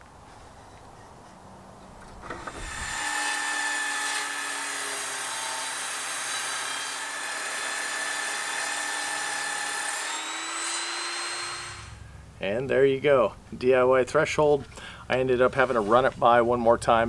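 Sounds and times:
table saw ripping wood: 2.1s - 12.0s.

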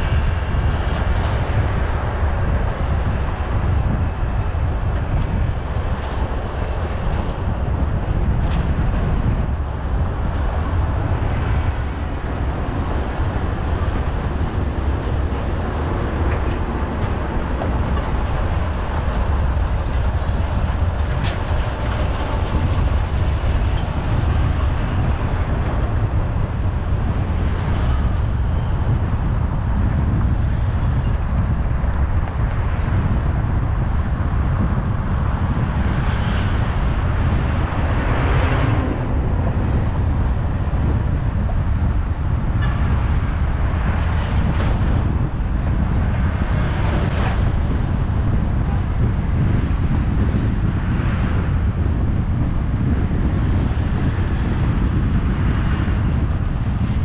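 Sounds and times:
road and wind noise: 0.0s - 57.0s.

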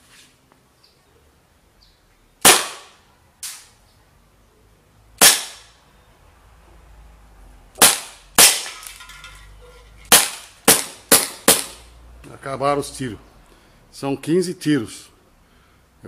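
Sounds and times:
air pistol shots popping: 2.4s - 3.7s, 5.2s - 5.8s, 7.8s - 8.8s, 10.1s - 11.8s.

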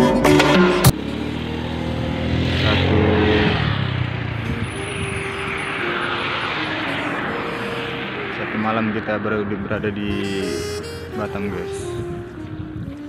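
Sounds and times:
background music: 0.0s - 1.4s, 4.4s - 13.0s
passing vehicle engine hum: 0.0s - 13.0s
steady traffic rushing noise: 0.0s - 13.0s.

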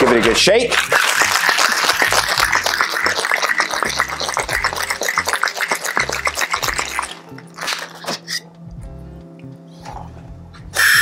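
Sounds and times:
ice rattling in cocktail shaker: 0.0s - 8.4s.

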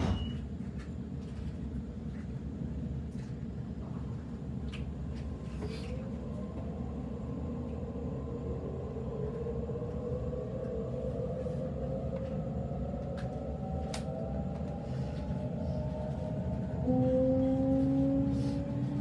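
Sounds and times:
train wheels rumbling: 7.8s - 19.0s.

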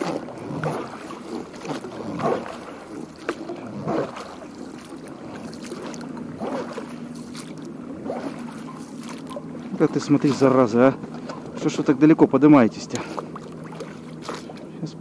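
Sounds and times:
water swishing: 0.0s - 15.0s.

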